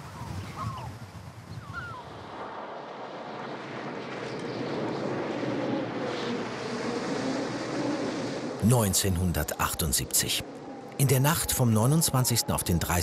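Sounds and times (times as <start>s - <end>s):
bird calling: 0.0s - 0.9s, 1.6s - 2.1s
howling storm wind: 0.0s - 13.0s.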